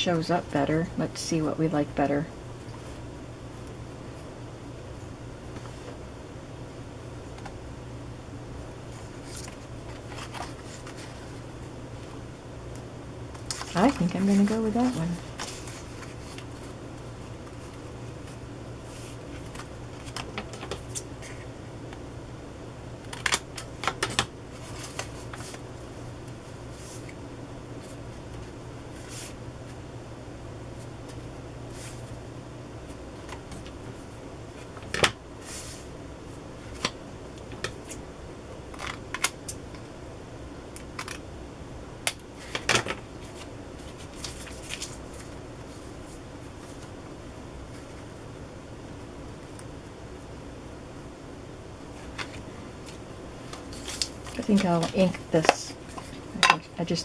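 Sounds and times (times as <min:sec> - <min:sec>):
faint low hum: 0:00.0 - 0:57.0
paper rustling: 0:08.9 - 0:11.4, 0:13.4 - 0:16.8, 0:23.1 - 0:25.6, 0:43.2 - 0:46.9, 0:53.5 - 0:56.2
sharp paper crinkles and taps: 0:53.5 - 0:56.2.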